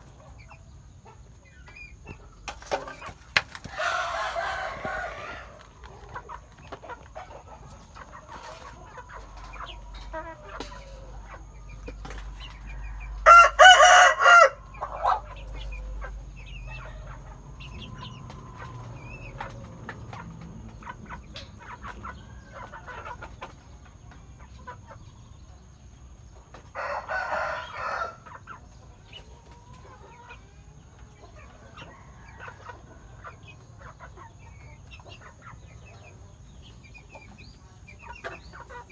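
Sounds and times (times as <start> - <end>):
chickens clucking: 0.0 - 38.9
rooster crowing: 3.7 - 5.6, 12.8 - 14.8, 26.7 - 28.2.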